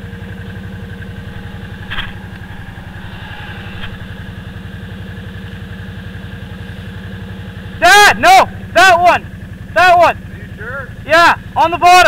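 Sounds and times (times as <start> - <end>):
atv engine idling: 10.2 - 11.9.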